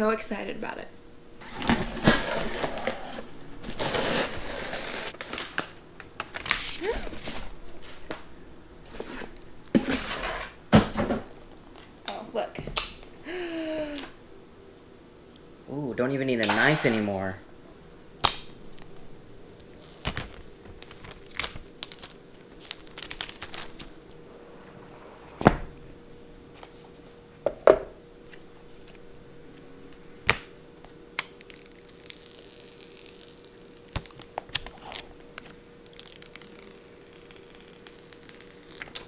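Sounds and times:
plastic wrap crinkling: 0:01.4 - 0:08.3, 0:18.4 - 0:24.2, 0:31.3 - 0:39.0.

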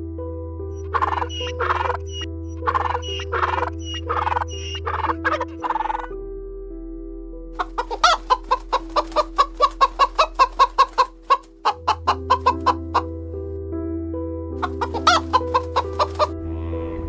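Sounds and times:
background music with held tones: 0:00.0 - 0:17.0
chicken clucking: 0:00.8 - 0:06.1, 0:07.6 - 0:13.1, 0:14.6 - 0:16.3.

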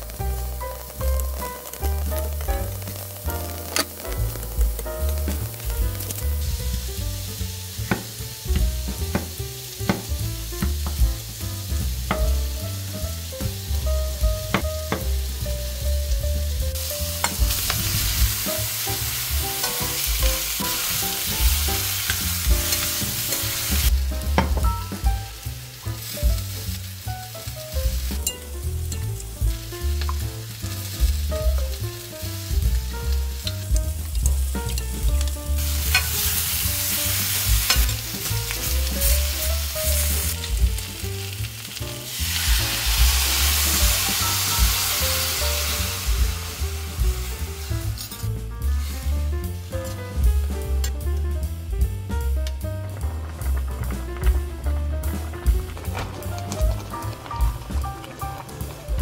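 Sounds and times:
meat sizzling in a pan: 0:00.0 - 0:51.0
tongs clicking on metal: 0:35.9 - 0:36.3.

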